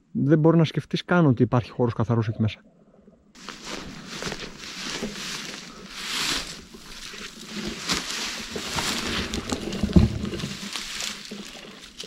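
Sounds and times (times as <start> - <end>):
branches cracking: 3.4 - 12.0
branches rustling: 3.4 - 12.0.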